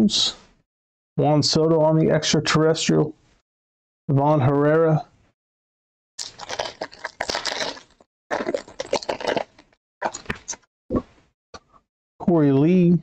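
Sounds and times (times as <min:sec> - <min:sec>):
foil card pack crinkling and tearing: 0:06.2 - 0:10.6.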